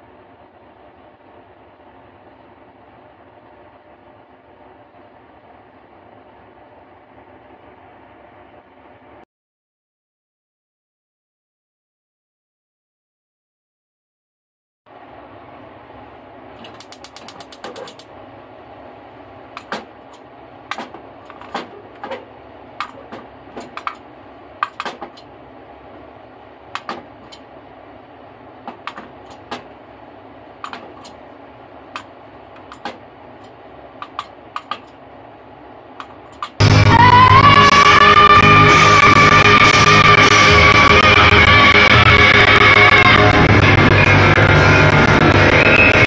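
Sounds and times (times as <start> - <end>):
gas stove igniter clicking: 16.6 - 18.1, 24.6 - 25.3, 26.7 - 27.4, 31.9 - 35.0.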